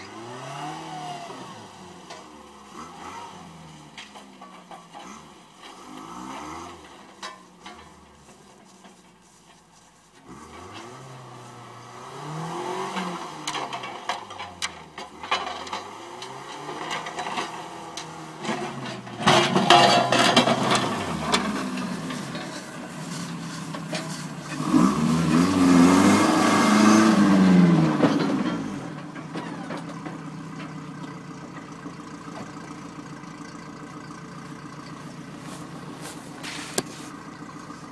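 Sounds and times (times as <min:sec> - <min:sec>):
truck engine revving: 0:00.0 - 0:07.2, 0:10.2 - 0:37.9
suv driving past revving: 0:24.5 - 0:28.0.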